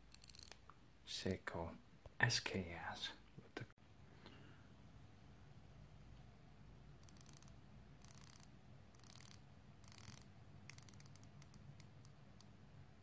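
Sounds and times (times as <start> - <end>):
watch bezel ratchet clicking: 0.1 - 0.6, 7.0 - 12.5.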